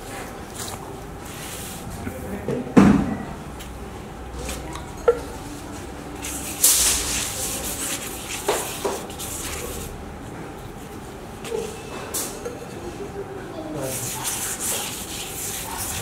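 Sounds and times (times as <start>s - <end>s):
utensil scraping: 6.2s - 10.0s, 13.8s - 16.0s.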